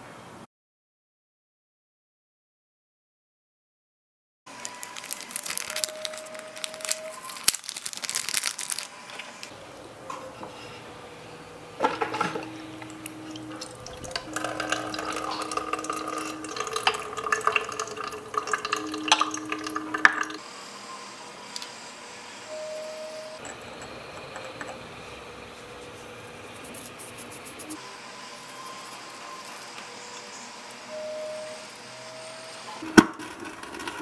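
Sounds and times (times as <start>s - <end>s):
water running into metal sink: 11.8s - 20.4s.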